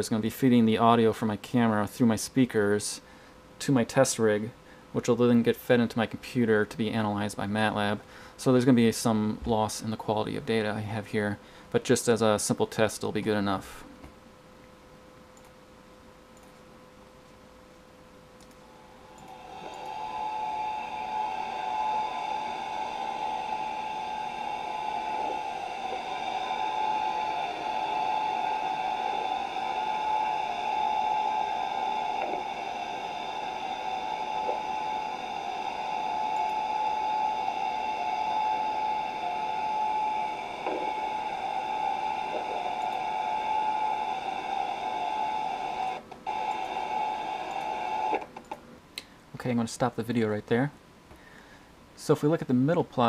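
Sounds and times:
underwater boat engine hum: 19.4 - 45.8.

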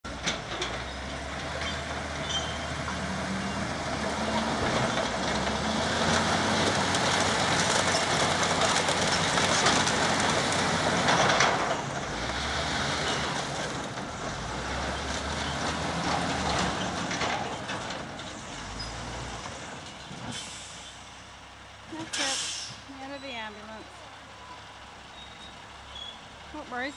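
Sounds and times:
mechanical clatter and grinding: 4.1 - 14.4, 15.0 - 20.1.

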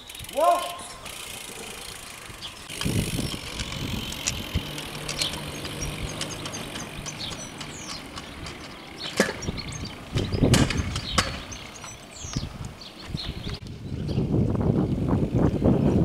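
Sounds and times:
small birds chirping: 0.0 - 14.4
kick scooter rolling over stone: 1.0 - 13.6
knocking rattle: 3.6 - 12.0.

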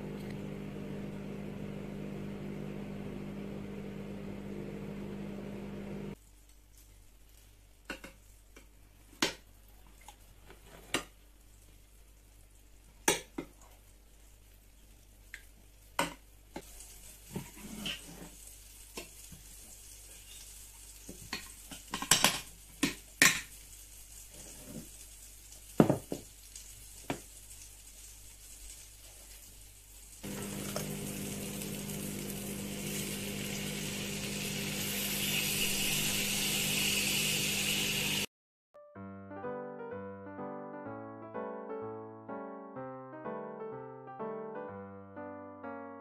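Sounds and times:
sizzling in a frying pan: 11.4 - 38.3.

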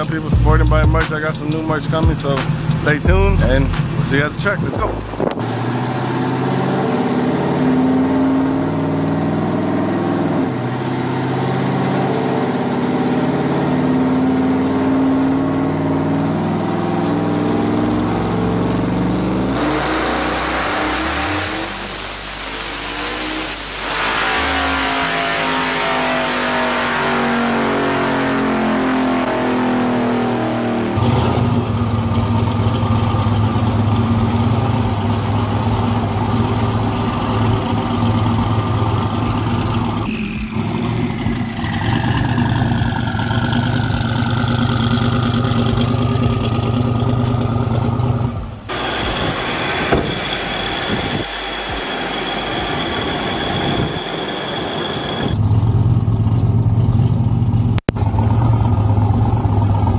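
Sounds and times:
falling whine: 0.0 - 56.4
truck engine revving: 0.0 - 59.9
steady high tone: 19.0 - 28.5, 48.7 - 55.4.

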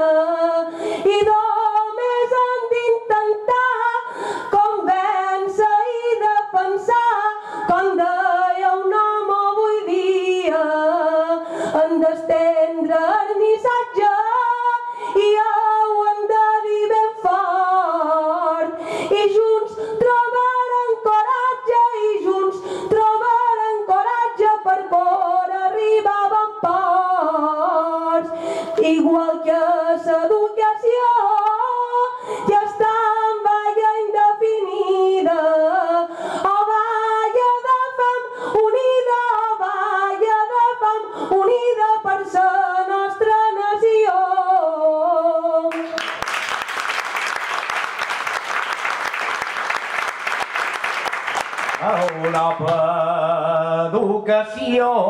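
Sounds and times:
woman singing unaccompanied: 0.0 - 45.8
audience applause: 45.7 - 52.8.

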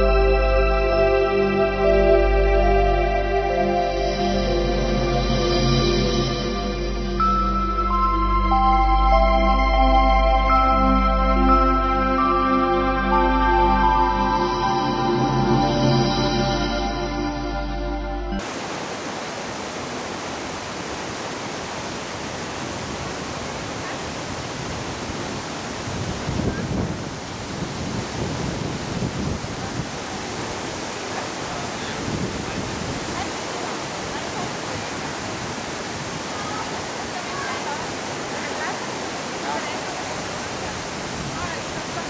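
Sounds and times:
soft background music: 0.0 - 18.4
river water rushing: 18.4 - 42.0.

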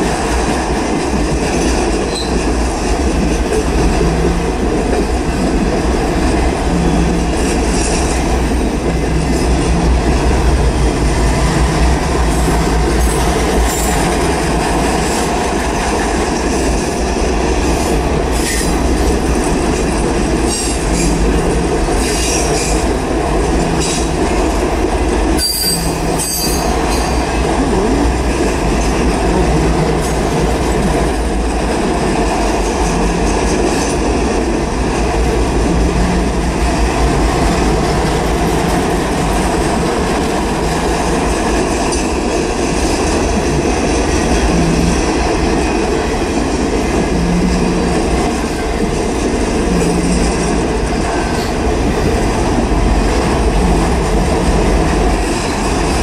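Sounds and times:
train wheels rumbling on rail: 0.0 - 56.0
high-pitched wheel squeals: 25.4 - 27.2.

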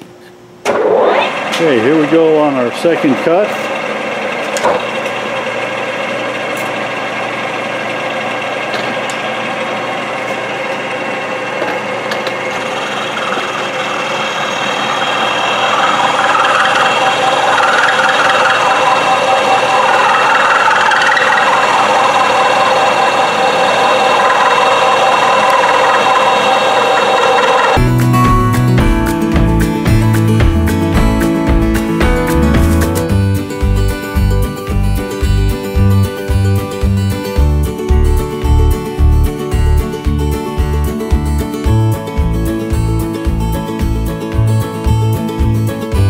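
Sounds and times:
milling machine whine: 0.6 - 46.0
chatter of metal cutting: 1.3 - 27.8.

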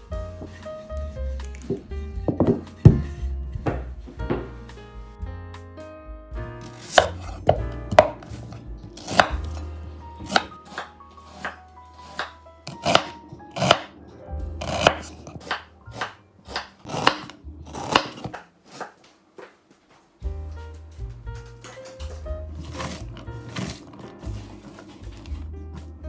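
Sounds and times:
knife chopping onion on board: 6.8 - 8.3, 9.0 - 9.6, 10.2 - 13.9, 14.6 - 18.9.

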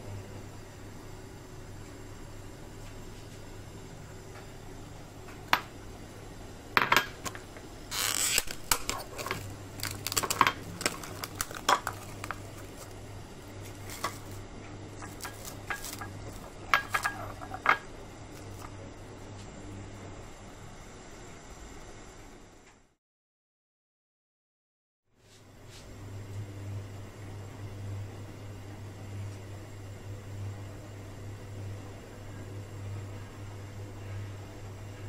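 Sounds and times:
porcelain bowls clinking on stone: 15.0 - 17.9.

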